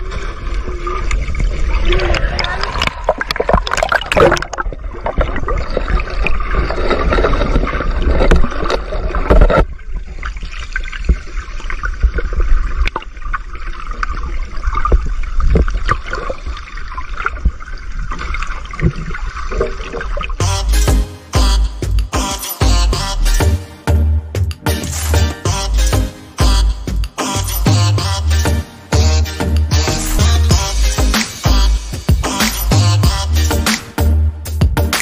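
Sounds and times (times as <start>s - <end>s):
underwater sloshing and bubbling: 0.0s - 20.4s.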